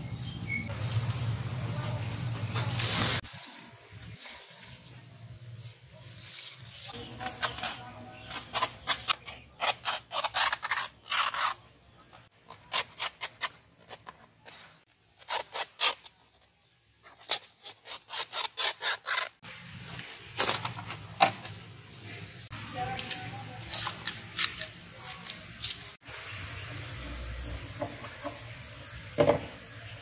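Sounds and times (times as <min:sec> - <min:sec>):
banana leaves rustling on table: 0:00.8 - 0:08.3.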